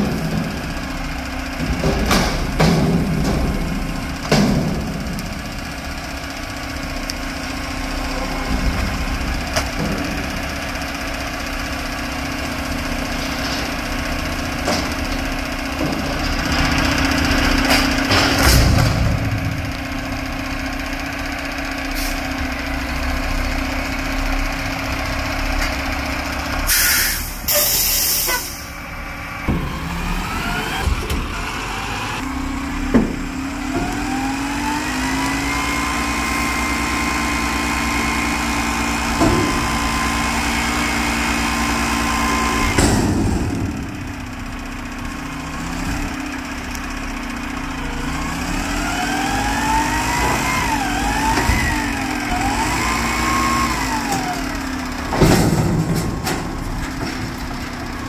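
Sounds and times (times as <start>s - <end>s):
diesel engine running: 0.0s - 58.0s
loud air hiss: 26.7s - 28.7s
hydraulic whine: 47.6s - 56.9s.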